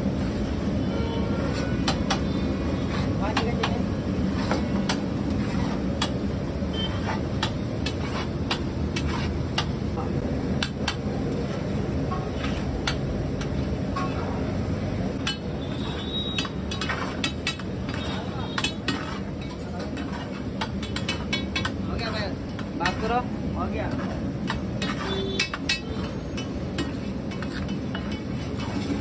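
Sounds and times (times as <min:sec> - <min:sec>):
metal spatulas clinking on griddles: 0:15.2 - 0:23.1, 0:23.9 - 0:29.0.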